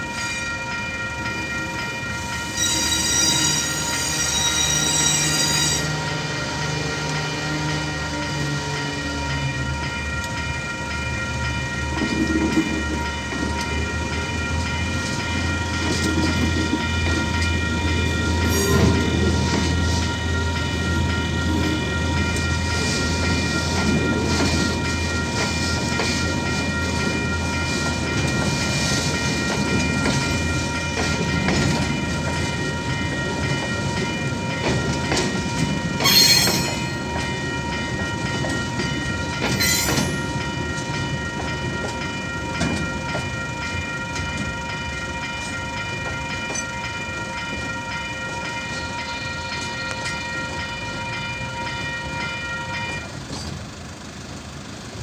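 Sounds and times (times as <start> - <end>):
train wheels clattering on rails: 0.0 - 54.8
crossing warning bell ringing: 0.0 - 55.0
diesel locomotive rumbling: 0.0 - 55.0
sharp metallic screeches: 2.6 - 5.9.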